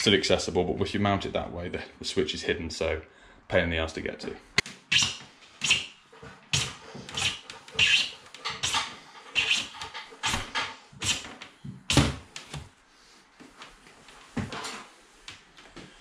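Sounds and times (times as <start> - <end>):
cable scraping and rustling: 13.4 - 15.8.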